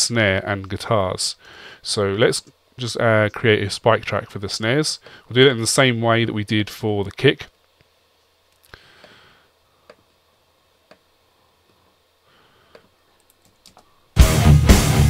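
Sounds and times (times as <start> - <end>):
computer mouse clicks: 12.7 - 13.9
drum kit playing: 14.2 - 15.0.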